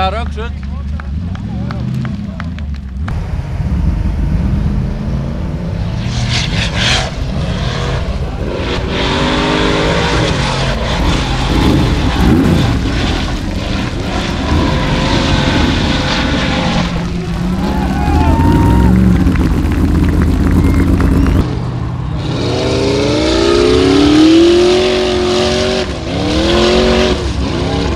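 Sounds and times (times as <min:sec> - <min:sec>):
buggy engine revving: 0:00.0 - 0:27.9
gravel spraying from tyres: 0:10.4 - 0:21.1.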